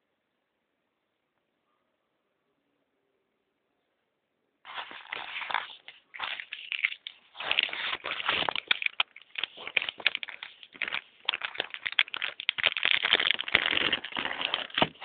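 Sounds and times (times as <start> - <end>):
plastic bag crinkling: 4.7 - 15.0.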